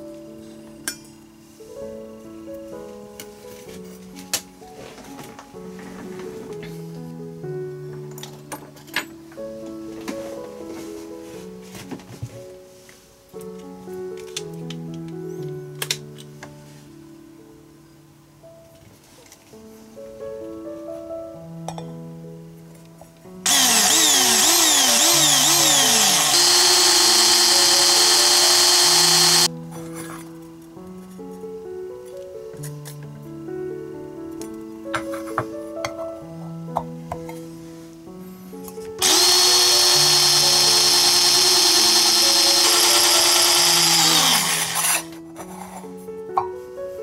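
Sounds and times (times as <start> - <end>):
cordless drill whining against metal: 23.5 - 29.5, 39.0 - 45.1.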